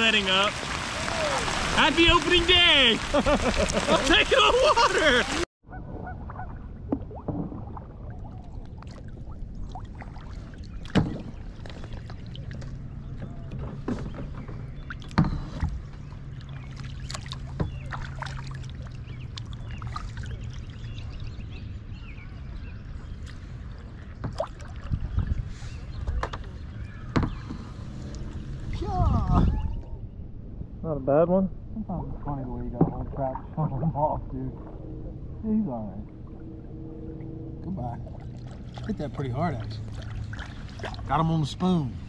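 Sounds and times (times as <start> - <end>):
paddle dipping and dripping: 0.0 - 29.0, 32.4 - 42.0
steady low rumble: 28.0 - 42.0.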